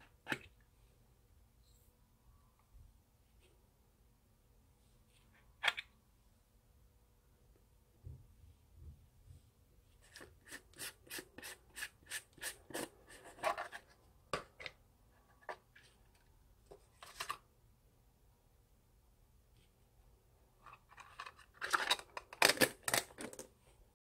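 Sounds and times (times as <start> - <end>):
jar rubbing when handled: 10.0 - 13.8.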